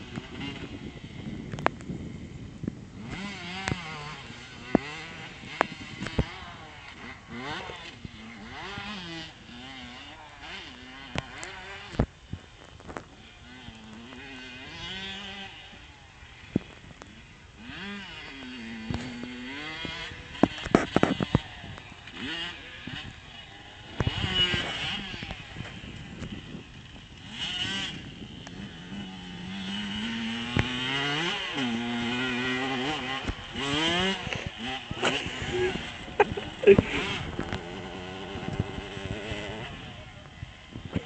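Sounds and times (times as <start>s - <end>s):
dirt bike engine revving: 0.0s - 41.0s.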